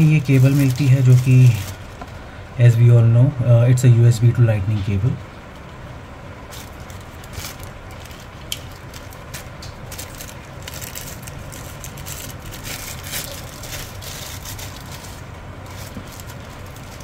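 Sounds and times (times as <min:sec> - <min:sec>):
plastic packaging crinkling: 0:00.0 - 0:02.2, 0:06.5 - 0:17.0
steady low hum: 0:00.0 - 0:17.0.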